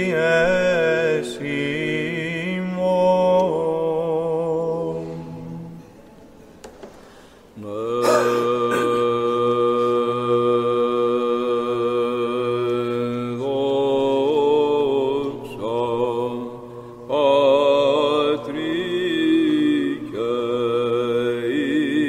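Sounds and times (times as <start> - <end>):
men chanting: 7.7 - 12.2.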